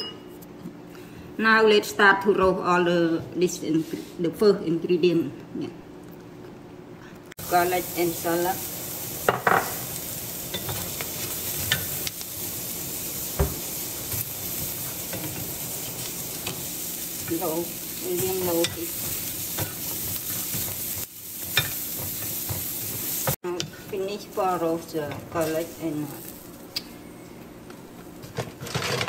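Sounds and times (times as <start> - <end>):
shallots and garlic sizzling: 7.4 - 29.0.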